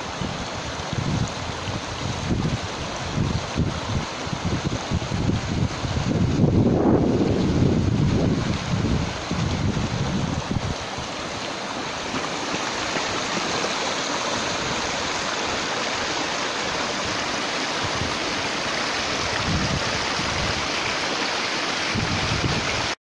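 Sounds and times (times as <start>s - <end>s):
stream splashing over rocks: 0.0s - 23.0s
wind buffeting microphone: 0.1s - 11.1s, 17.0s - 20.8s, 21.8s - 23.0s.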